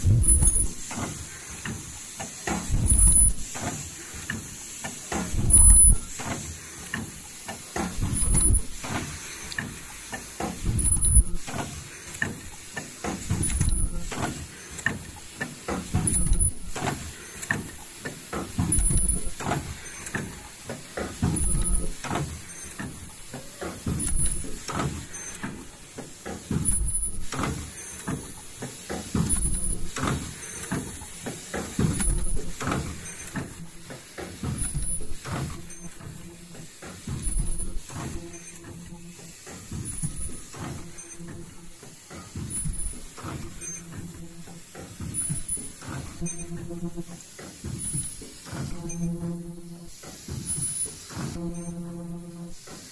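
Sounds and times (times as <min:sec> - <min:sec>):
pneumatic actuators clunking and hissing: 0:00.0 - 0:52.9
short high-pitched tone: 0:48.7 - 0:49.9, 0:51.4 - 0:52.6.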